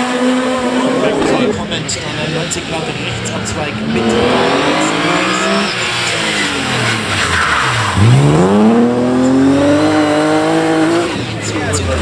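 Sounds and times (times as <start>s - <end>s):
rally car engine at high revs: 0.0s - 12.0s
tyre squeal and skidding: 4.1s - 8.4s.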